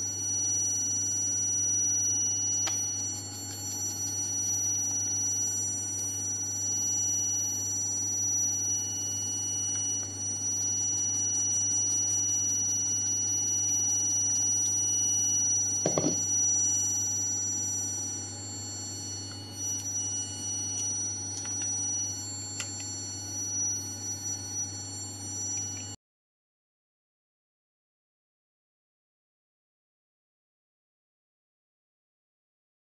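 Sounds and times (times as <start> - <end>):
dull knock: 15.9 - 16.2.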